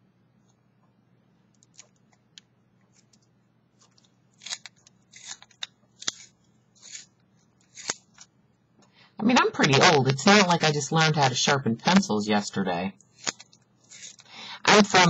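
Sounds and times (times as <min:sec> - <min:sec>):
pencil sharpener scraping: 0:04.4 - 0:08.1, 0:13.1 - 0:14.3.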